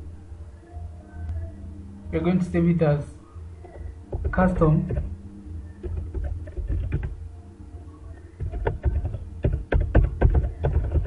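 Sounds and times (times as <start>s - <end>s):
low steady hum: 0.0s - 11.0s
keyboard typing clicks: 3.6s - 5.1s, 5.8s - 7.2s, 8.4s - 11.0s.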